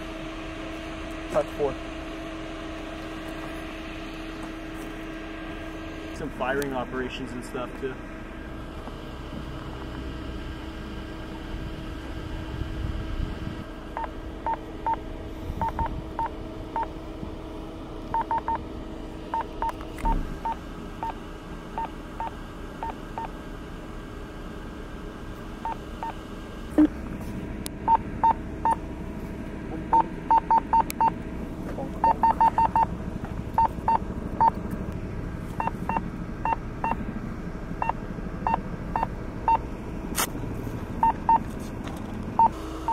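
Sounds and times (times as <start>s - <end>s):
steady low hum: 0.0s - 42.9s
short electronic beeps: 29.9s - 31.2s, 32.0s - 32.9s.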